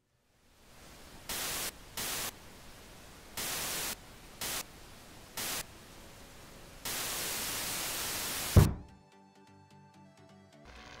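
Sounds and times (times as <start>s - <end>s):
television static hiss: 0.0s - 8.8s, 10.7s - 11.0s
bursts of static: 0.6s - 8.7s, 10.7s - 11.0s.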